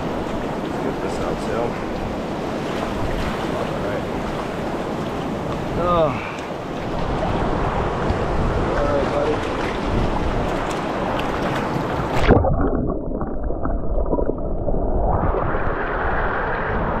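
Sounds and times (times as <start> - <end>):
stream water rushing over rocks: 0.0 - 14.5
splash: 8.7 - 16.7.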